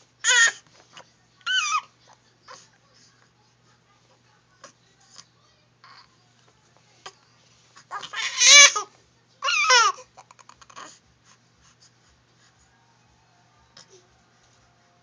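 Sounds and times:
baby fussing cries: 0.2s - 0.6s, 1.4s - 1.9s, 7.9s - 11.0s.

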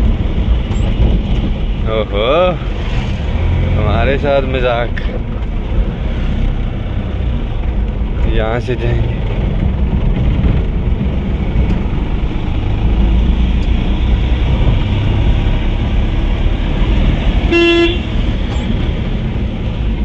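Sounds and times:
vehicle engine and road rumble: 0.0s - 20.0s
horn toot: 17.5s - 18.1s.

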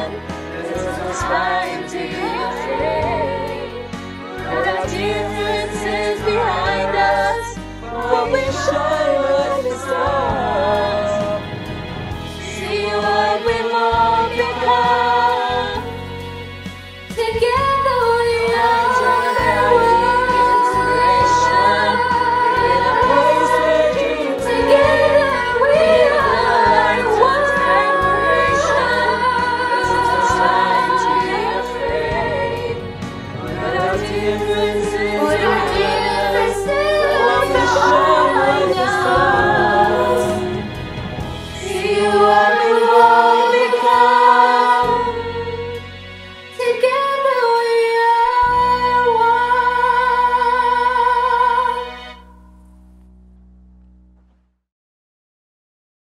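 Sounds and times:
children's choir singing: 0.0s - 16.0s, 17.8s - 45.8s.

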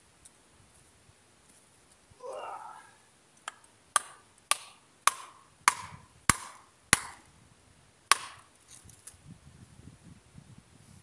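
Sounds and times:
hatchet striking metal in ground: 3.4s - 7.3s, 8.1s - 8.6s.

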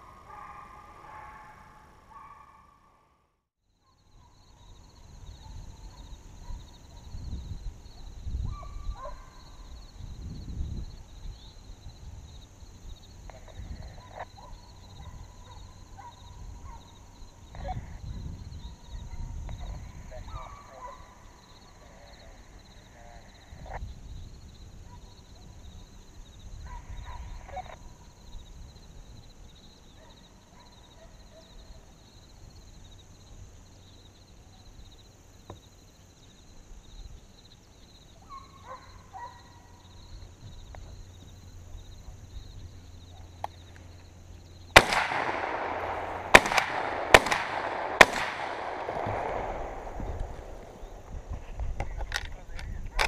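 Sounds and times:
distant hounds calling: 0.0s - 3.1s, 8.5s - 9.8s, 13.3s - 18.0s, 18.7s - 23.4s, 38.1s - 40.1s, 40.8s - 51.1s
shotgun shots: 44.7s - 51.0s.

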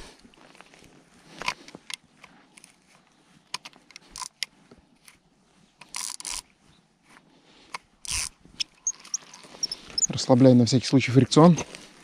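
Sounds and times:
fishing reel clicks: 5.8s - 6.4s, 8.0s - 10.1s
fishing reel winding: 5.9s - 6.4s, 8.0s - 10.1s.

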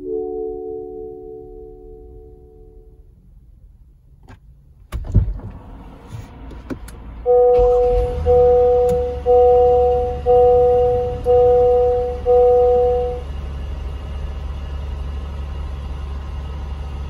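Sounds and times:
two-note warning chime: 0.0s - 3.0s, 7.3s - 13.3s
car engine starting and idling: 0.0s - 17.0s.

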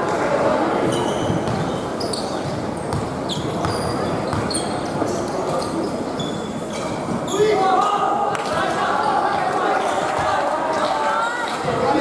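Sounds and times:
murmur of spectators: 0.0s - 12.0s
sneakers squeaking on court: 0.8s - 7.6s
basketball bouncing: 1.3s - 1.7s, 2.4s - 4.5s.

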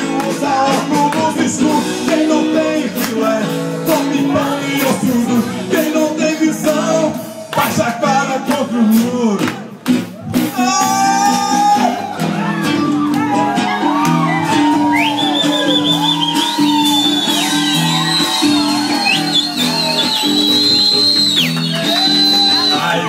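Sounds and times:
person singing: 0.0s - 9.7s, 10.4s - 15.0s
music with steady beat: 0.0s - 23.0s.

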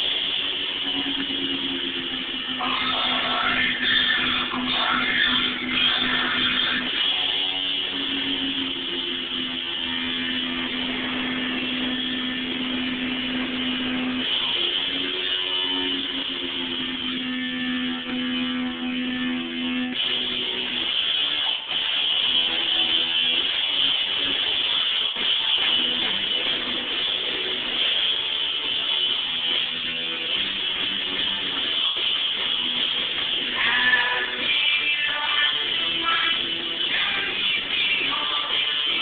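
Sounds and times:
background music with guitar: 0.0s - 39.0s.

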